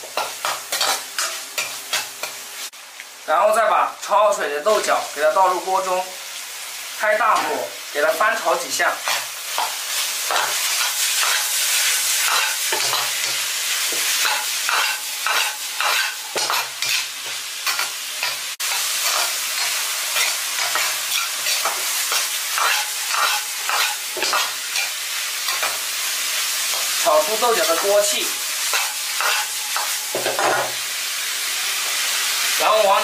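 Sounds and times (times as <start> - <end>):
spatula scraping a wok: 0.0 - 2.7, 9.0 - 27.0, 28.6 - 30.8
stir-frying sizzle in a wok: 0.0 - 33.0.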